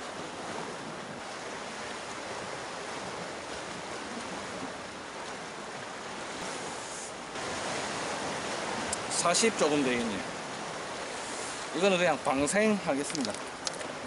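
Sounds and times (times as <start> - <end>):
surf breaking on rocks: 7.3 - 14.0.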